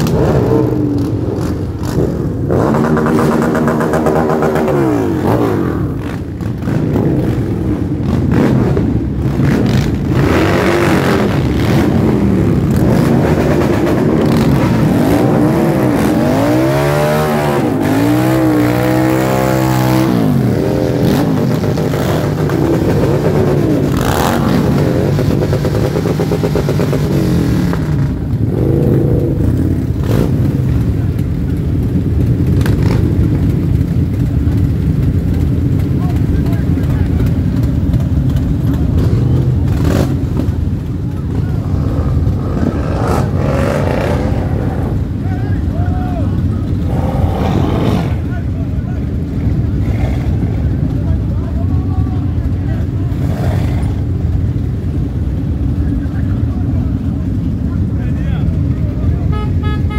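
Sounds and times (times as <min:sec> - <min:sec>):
motorcycle engines revving: 0:00.0 - 0:59.9.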